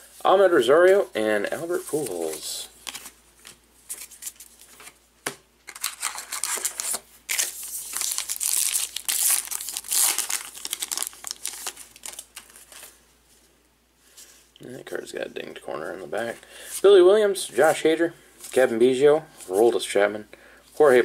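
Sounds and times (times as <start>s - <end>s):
card pack wrapper crinkling and tearing: 5.7s - 12.9s.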